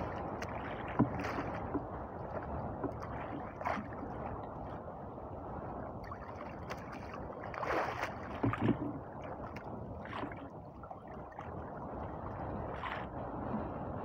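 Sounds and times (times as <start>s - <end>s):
water lapping against boat hull: 0.0s - 14.0s
water slaps: 6.5s - 8.8s.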